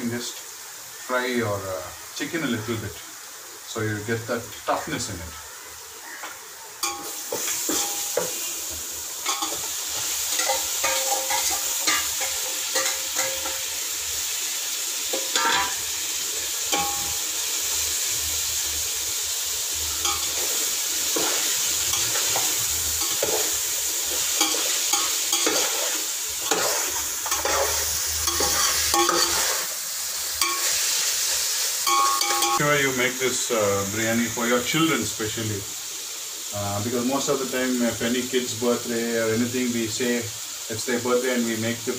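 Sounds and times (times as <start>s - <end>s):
chicken sizzling in oil: 0.0s - 41.9s
metal spoon scraping a pot: 9.3s - 13.7s, 20.0s - 29.7s.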